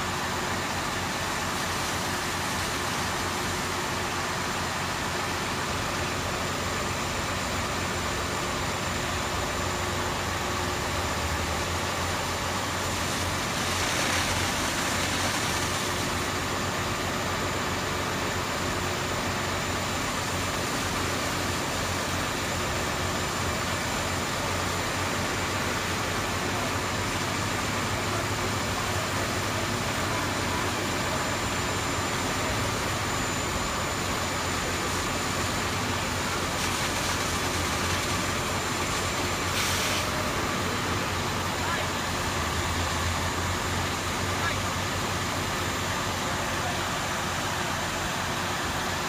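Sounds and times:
engine drone: 0.0s - 49.0s
water stream rushing hiss: 11.6s - 18.4s.

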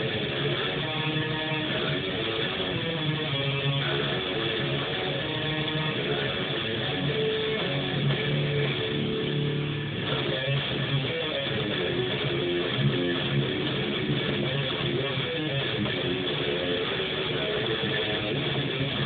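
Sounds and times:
electric guitar playing: 0.0s - 19.0s.

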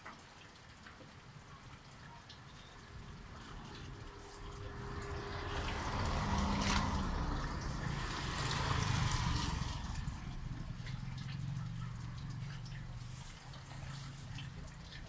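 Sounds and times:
rain dripping on wet street: 0.0s - 15.0s
vehicle passing with tyre hiss: 2.9s - 15.0s.

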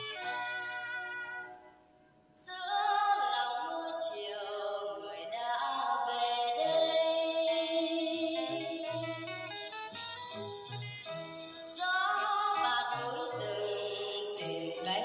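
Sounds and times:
instrumental music: 0.0s - 2.5s, 7.6s - 15.0s
singing voice with vibrato: 2.4s - 9.9s, 11.1s - 15.0s.

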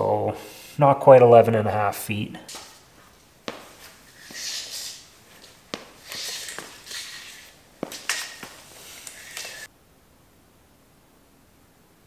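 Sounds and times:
rubber strip scraping on concrete: 2.5s - 9.7s
tape measure blade hissing: 3.5s - 9.7s.

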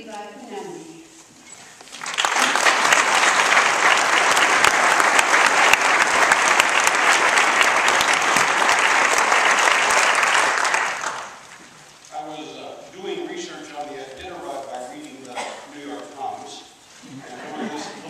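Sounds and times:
audience applauding: 1.8s - 11.7s.

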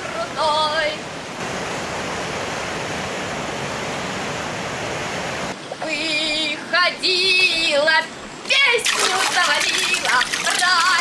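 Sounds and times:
woman singing: 0.0s - 1.0s, 5.8s - 11.0s
water rushing from rapids: 0.0s - 11.0s.

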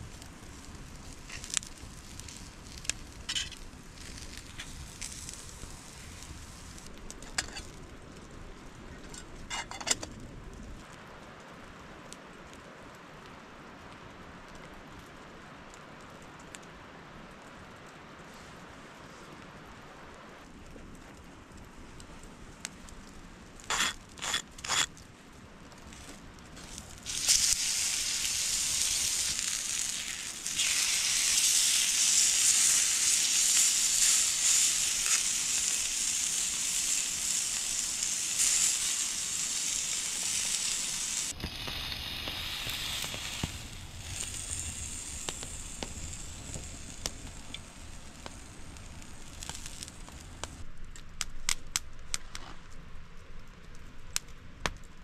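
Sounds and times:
food sizzling on hot stone: 0.0s - 7.8s, 23.6s - 24.9s, 26.6s - 50.6s
fire crackling: 0.0s - 55.0s.

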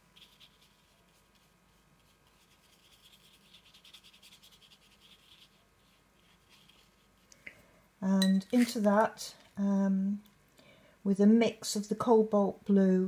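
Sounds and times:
brush scratching on paper: 0.0s - 7.3s.

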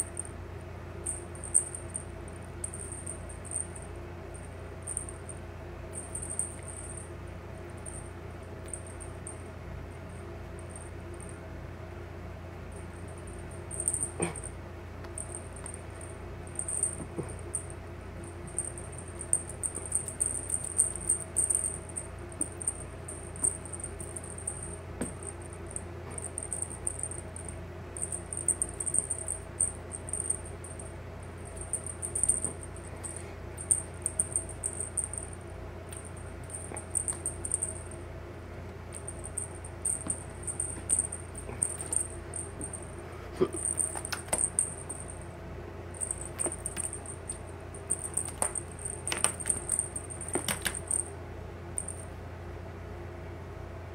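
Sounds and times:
steady low hum: 0.0s - 53.9s
cat toy jingling: 13.0s - 14.5s, 15.2s - 38.0s, 38.9s - 43.0s, 43.6s - 45.2s, 46.0s - 51.1s.

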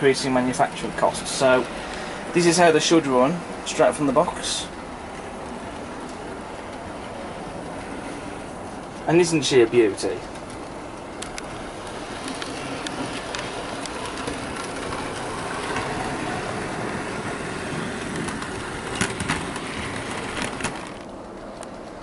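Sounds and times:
model train motor whirring: 11.2s - 21.1s.

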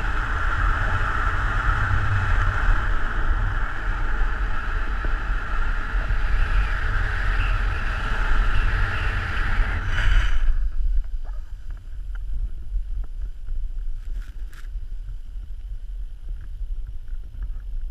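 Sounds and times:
wind buffeting microphone: 0.0s - 17.9s.

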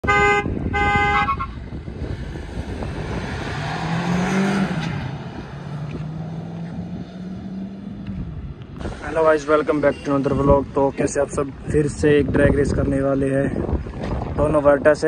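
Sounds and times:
cars accelerating hard: 1.7s - 9.0s.

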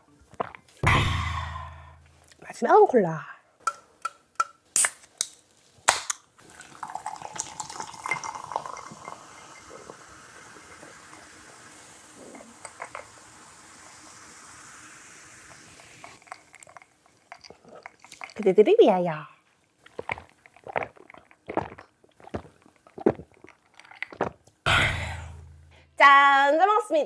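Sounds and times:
can cracked open: 4.7s - 6.3s
cola fizzing in a glass: 6.4s - 18.6s, 19.8s - 24.4s.

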